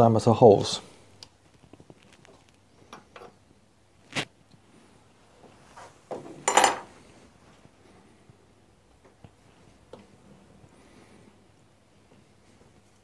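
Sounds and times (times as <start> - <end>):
metal tools clinking: 6.4 - 6.9
metallic clatter with ring: 6.4 - 6.9.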